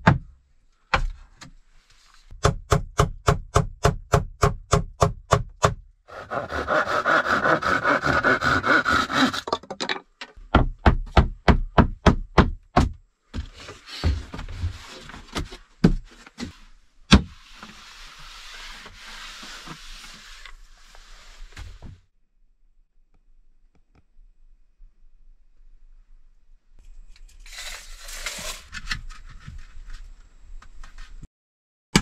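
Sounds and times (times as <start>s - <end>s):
hand saw cutting wood: 6.1s - 9.5s.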